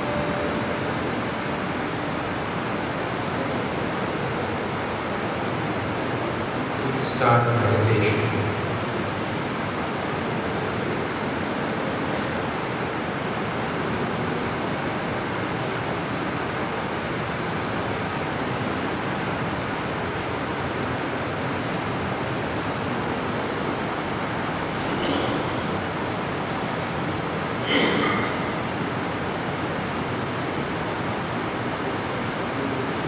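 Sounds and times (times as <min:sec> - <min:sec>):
rushing room tone: 0:00.0 - 0:20.6.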